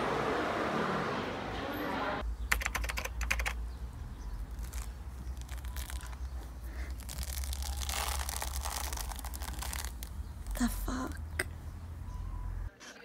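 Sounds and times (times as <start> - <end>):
fruit rind tearing by hand: 4.3 - 10.6.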